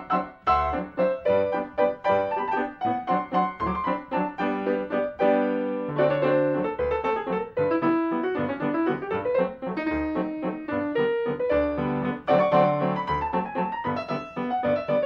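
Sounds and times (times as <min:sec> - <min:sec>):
solo piano music: 0:00.0 - 0:15.0.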